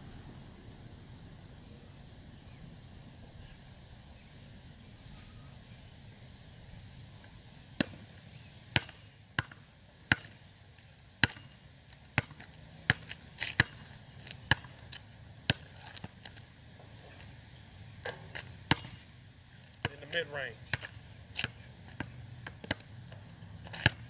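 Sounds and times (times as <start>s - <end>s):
basketball bouncing on asphalt: 7.8s - 17.4s, 18.0s - 24.0s.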